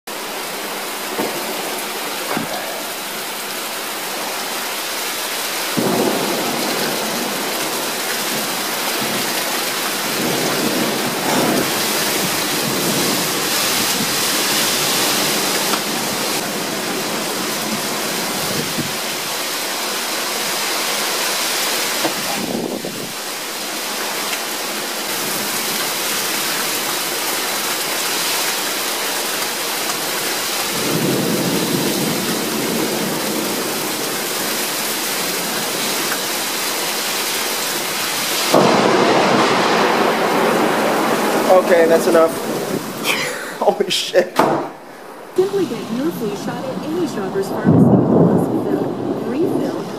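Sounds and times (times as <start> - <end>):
heavy rain: 0.0 - 49.9
thunder rumbling: 0.1 - 43.6, 44.2 - 49.9
strong wind: 5.8 - 23.9, 37.8 - 43.2, 44.7 - 49.9.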